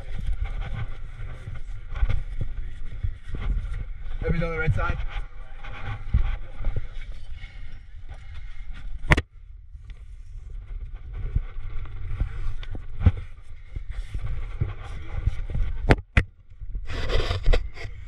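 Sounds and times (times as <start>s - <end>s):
wind rumble on microphone: 0.0s - 18.0s
hands and shoes scraping on rock: 16.9s - 18.0s.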